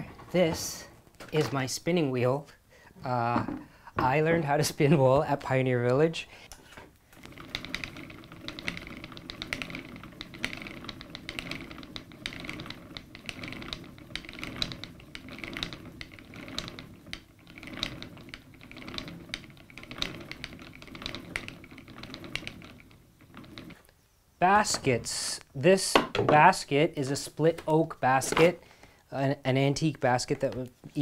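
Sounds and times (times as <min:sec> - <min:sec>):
spinning wheel whir: 0:07.1 - 0:23.8
spinning wheel clattering: 0:07.2 - 0:23.8.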